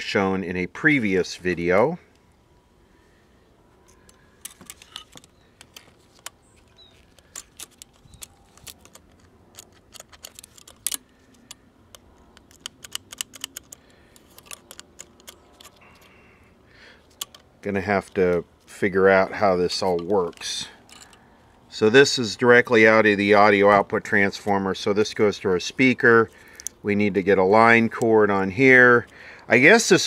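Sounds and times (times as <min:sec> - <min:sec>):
metal chassis clicks and taps: 0:03.9 - 0:16.1, 0:17.1 - 0:18.4.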